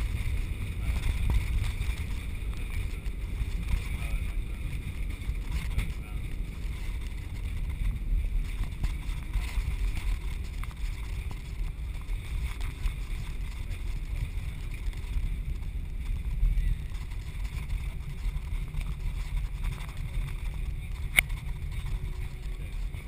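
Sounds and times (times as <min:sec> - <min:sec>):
aircraft cabin low rumble: 0:00.0 - 0:23.0.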